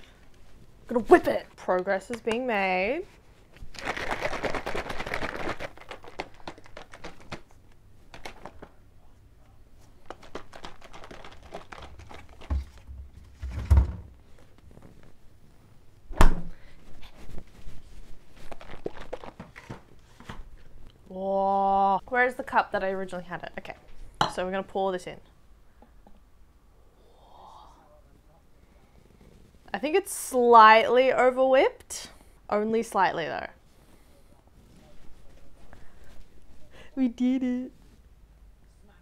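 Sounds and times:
liquid shaken in plastic bottle: 3.6s - 8.6s, 10.0s - 12.9s, 18.3s - 19.7s.

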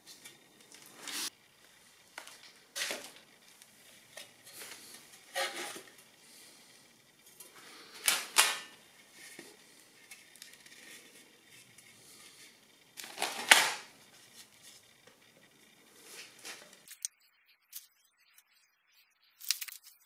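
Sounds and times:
steel plate and wood blocks scraping: 4.5s - 6.0s.

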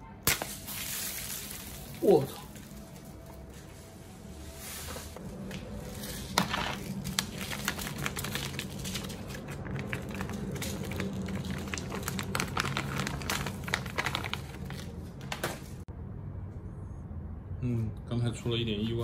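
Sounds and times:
plastic bag crinkling: 0.5s - 3.2s, 5.7s - 15.5s.

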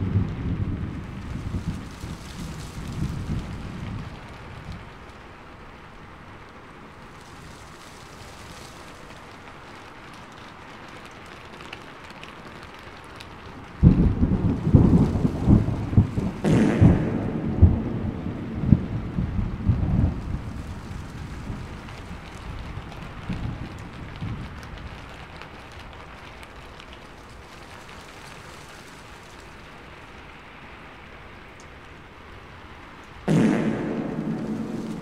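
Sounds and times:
steady rain: 0.0s - 35.0s
loud low rumble: 16.4s - 19.8s, 33.3s - 35.0s.

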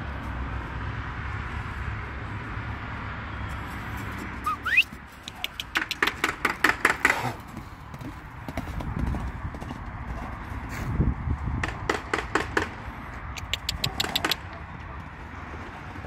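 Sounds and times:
horse hoofbeats on dirt: 3.5s - 16.0s.

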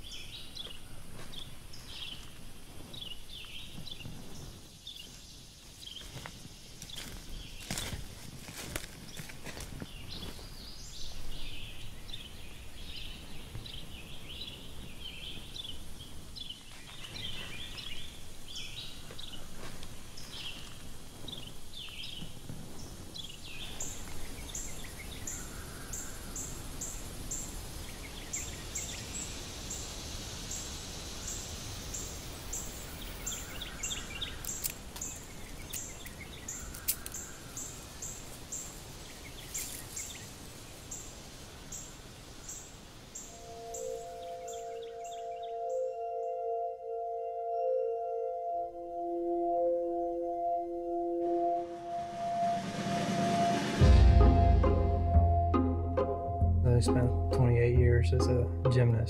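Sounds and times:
faint steady hiss: 0.0s - 45.4s
small birds chirping: 0.0s - 45.8s.

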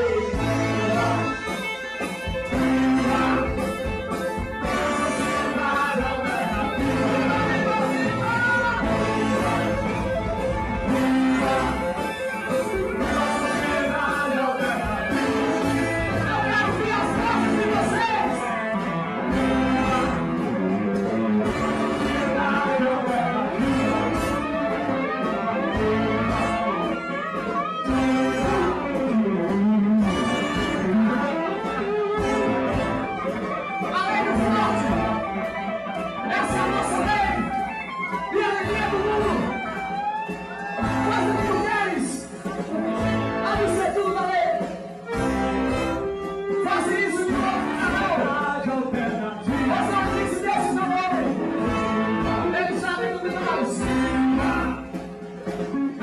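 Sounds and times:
electric guitar: 0.0s - 56.0s
live rock band playing: 0.0s - 56.0s
man singing into microphone: 4.6s - 10.1s, 11.2s - 18.6s, 22.0s - 24.3s.

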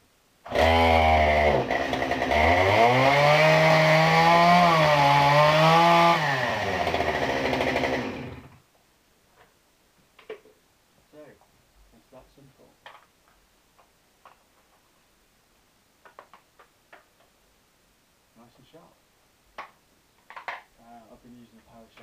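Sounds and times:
chainsaw running at high revs: 0.5s - 8.6s.

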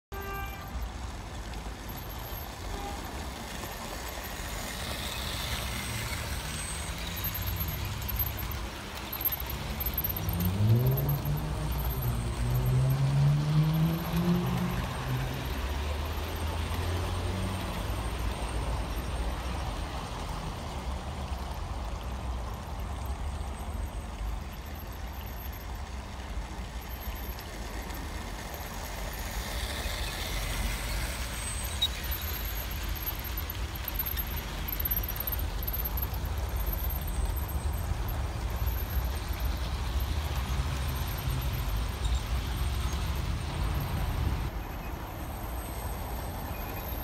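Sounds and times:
model train humming past: 0.2s - 47.0s.

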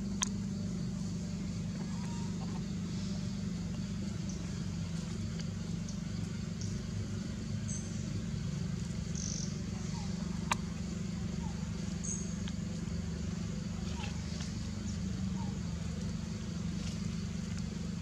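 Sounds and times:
low mechanical hum: 0.0s - 18.0s
faint ticks: 0.1s - 0.4s.

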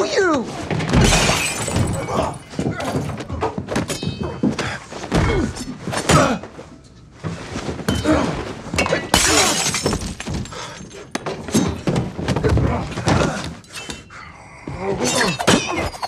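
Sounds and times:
glass shattering: 0.9s - 3.0s, 8.8s - 11.8s, 15.0s - 16.0s.

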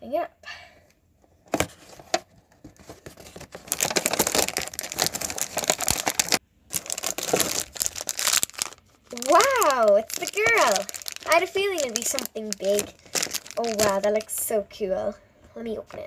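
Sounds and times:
plastic wrapper crackling: 2.7s - 14.5s
cardboard being torn: 3.2s - 14.0s.

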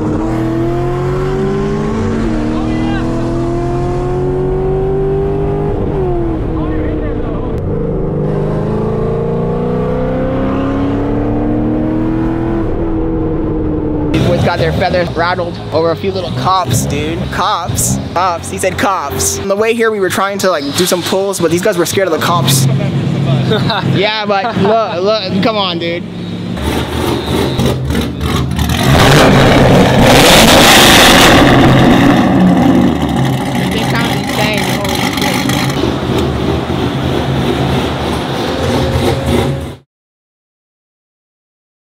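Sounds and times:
car engine accelerating: 0.0s - 19.5s, 26.1s - 39.8s.

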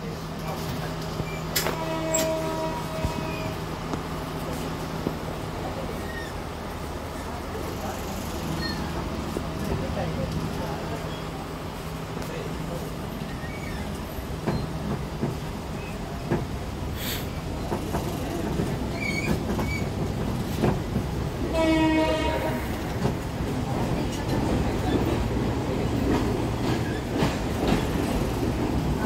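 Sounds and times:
diesel train rumbling: 0.0s - 29.0s
train horn blast: 1.6s - 3.6s, 21.5s - 22.9s.

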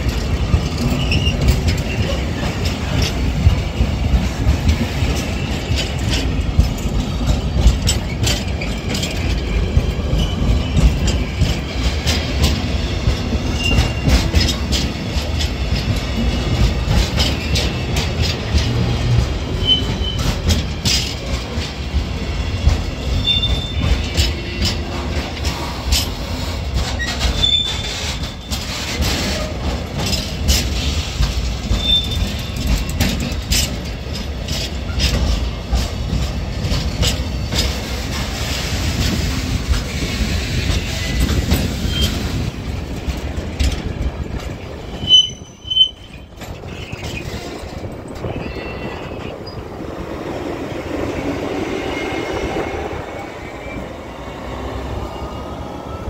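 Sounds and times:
wheels clacking over rail joints: 0.0s - 55.1s
diesel locomotive engine: 0.0s - 56.0s
train wagons rumbling past: 0.0s - 56.0s
high wheel squeals: 0.7s - 2.2s, 19.6s - 20.5s, 22.9s - 24.9s, 26.9s - 29.6s, 31.6s - 32.8s, 44.8s - 49.8s.

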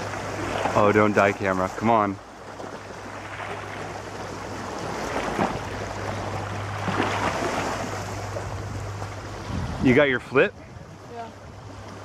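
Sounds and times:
low hum: 1.7s - 12.0s
steady rushing noise: 4.9s - 11.3s.

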